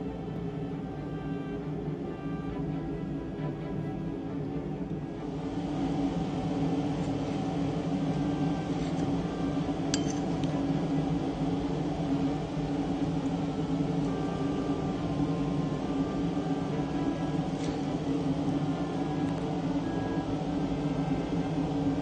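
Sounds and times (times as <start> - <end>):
steady low hum: 0.0 - 22.0
spoon clinking on ceramic plate: 10.0 - 10.2.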